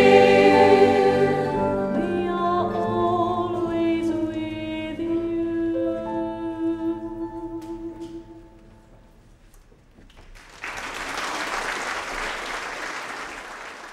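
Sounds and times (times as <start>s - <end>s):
audience applause: 10.3s - 13.9s.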